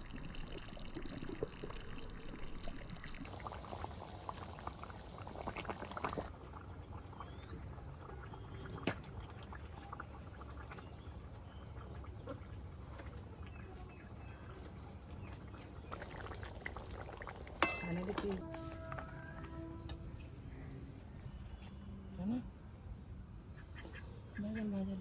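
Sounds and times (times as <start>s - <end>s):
curry bubbling and popping: 0.0s - 19.6s.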